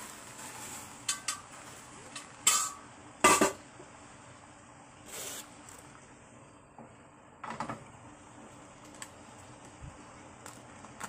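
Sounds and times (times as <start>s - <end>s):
metal cookware clanking: 0.4s - 3.6s
lid clinking: 1.0s - 3.6s.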